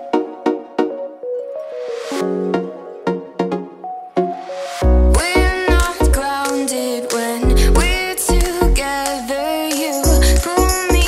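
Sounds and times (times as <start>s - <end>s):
synth chords: 0.0s - 11.0s
heavy deep bass: 4.8s - 6.2s, 7.4s - 8.8s.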